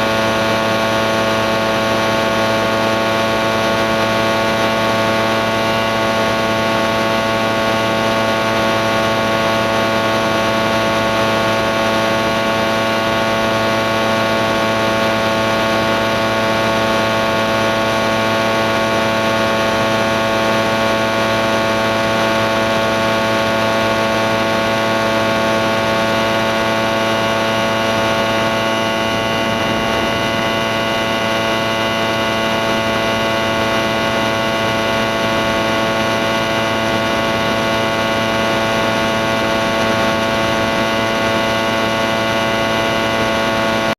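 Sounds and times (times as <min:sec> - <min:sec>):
aircraft engine drone: 0:00.0 - 0:43.9.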